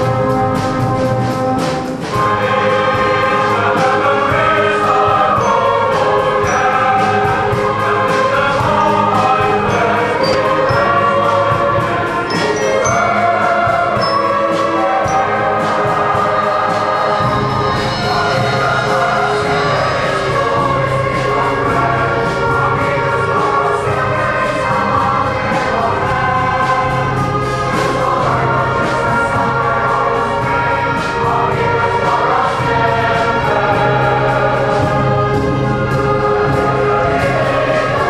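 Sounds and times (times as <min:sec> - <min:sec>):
choir singing: 0:00.0 - 0:38.0
orchestral accompaniment with beat: 0:00.0 - 0:38.0.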